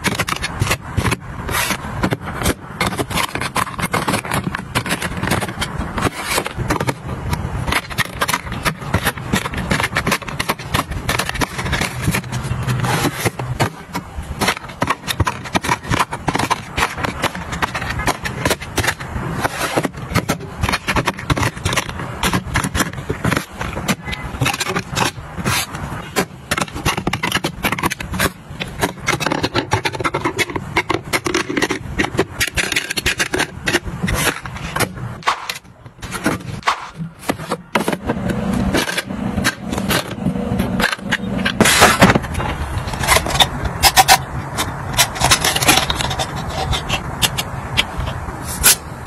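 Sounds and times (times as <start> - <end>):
plastic bins clicking and scraping: 0.0 - 49.0.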